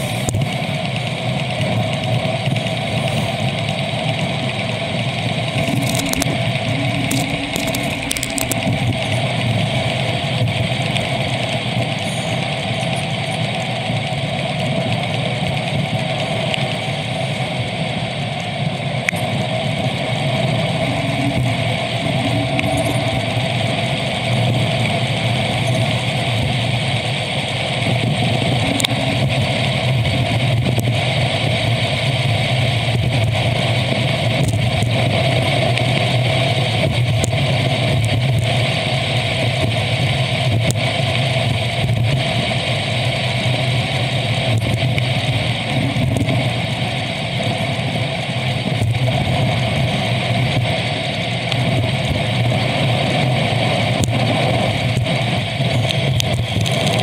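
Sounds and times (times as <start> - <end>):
bicycle road and wind noise: 0.0 - 57.0
faint clicks: 5.6 - 9.5.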